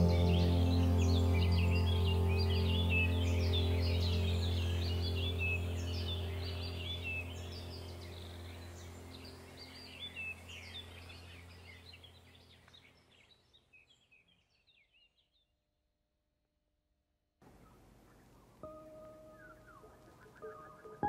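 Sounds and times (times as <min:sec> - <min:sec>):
low steady hum: 0:00.0 - 0:13.2
birds chirping: 0:00.0 - 0:15.5, 0:17.4 - 0:21.0.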